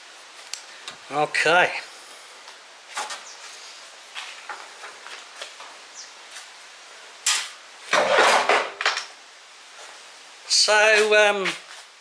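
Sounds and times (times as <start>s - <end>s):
metal panel scraping: 7.3s - 8.8s.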